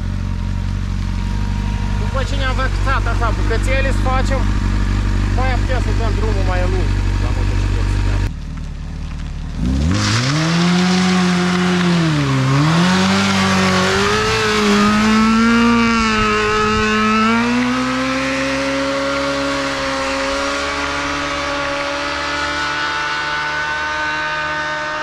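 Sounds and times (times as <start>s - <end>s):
motorcycle engine at high revs: 0.0s - 25.0s
tyre spinning on asphalt: 8.4s - 22.4s.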